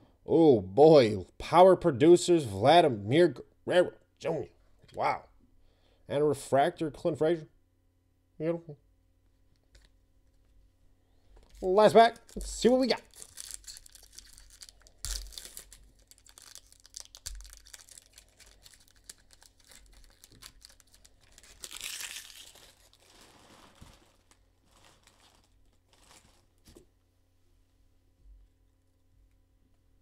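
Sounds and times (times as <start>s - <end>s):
wrapper tearing and crinkling: 11.5s - 26.7s.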